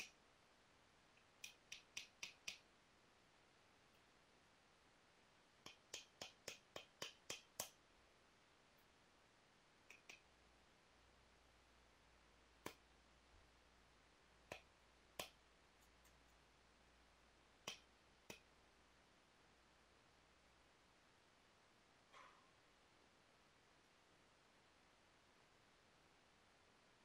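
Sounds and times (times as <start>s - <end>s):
knapping tool tapping stone: 5.7s - 7.8s.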